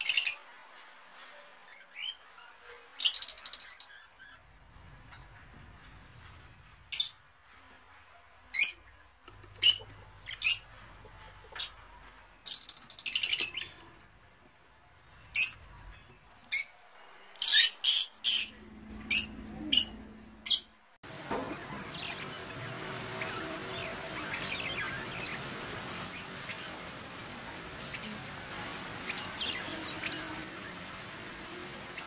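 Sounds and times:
parrots chirping: 1.9 - 5.9, 8.5 - 14.1, 15.2 - 16.8, 17.4 - 20.7, 21.5 - 27.0
noisy background: 18.4 - 32.0.

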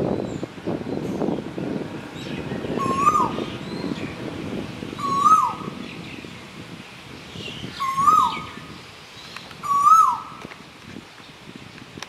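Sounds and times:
koel calling: 9.6 - 10.3.

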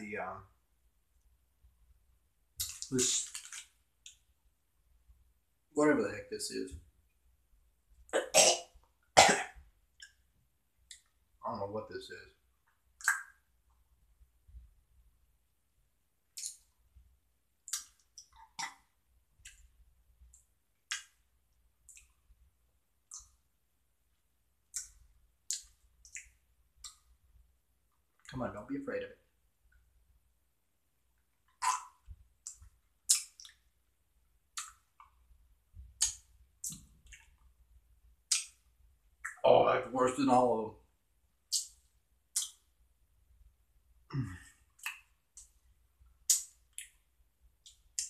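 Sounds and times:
wet mouth clicks and lip smacks: 2.6 - 4.2, 13.0 - 13.4, 16.4 - 16.7, 17.6 - 18.8, 20.3 - 21.2, 21.9 - 22.2, 24.7 - 27.1, 31.4 - 33.7, 34.5 - 35.1, 36.0 - 37.5, 38.3 - 38.6, 41.5 - 42.7, 44.8 - 45.6, 46.2 - 47.0.

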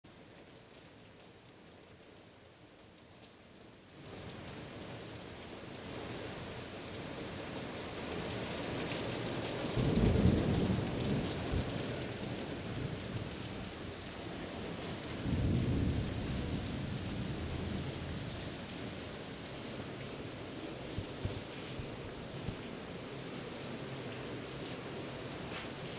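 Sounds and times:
steady rain falling: 0.0 - 25.9
thunder rumbling: 9.8 - 19.2.

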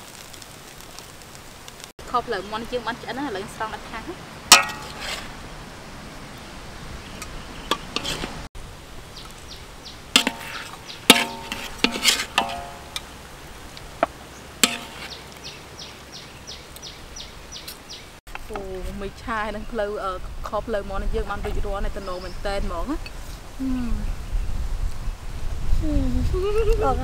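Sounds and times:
metal ladle clinking on wok: 4.5 - 5.0, 10.2 - 13.1, 14.6 - 15.1.

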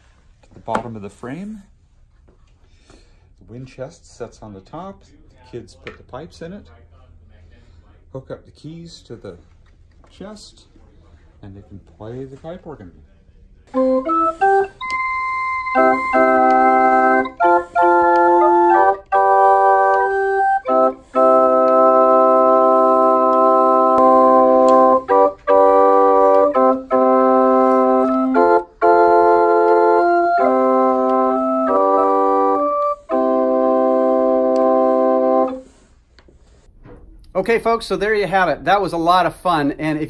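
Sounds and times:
pipe organ playing chords: 13.7 - 35.7.

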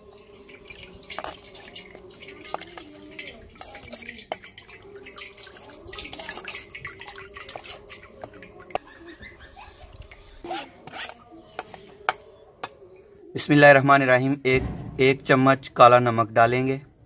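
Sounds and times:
liquid dripping into metal bowl: 0.0 - 13.1
metal spoon scraping mesh sieve: 0.2 - 8.9, 10.2 - 12.8.

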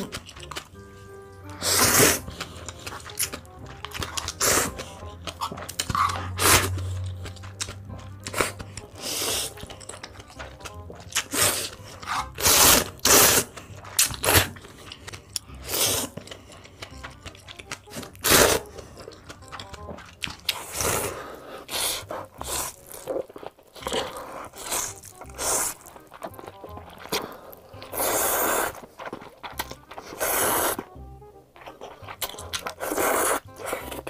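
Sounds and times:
chewing: 0.0 - 34.0
noodles being slurped: 1.5 - 31.0, 31.6 - 34.0.

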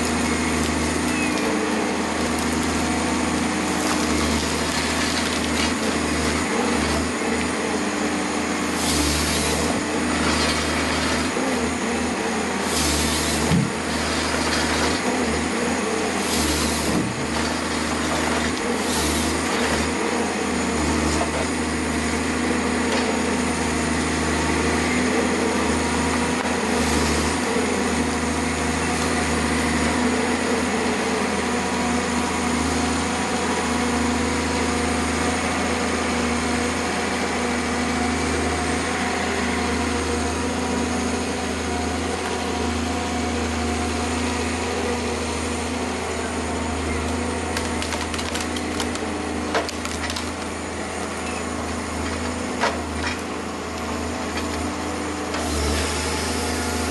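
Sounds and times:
diesel engine and hydraulics: 0.0 - 56.9
wood cracking: 3.8 - 6.0, 47.5 - 50.5.

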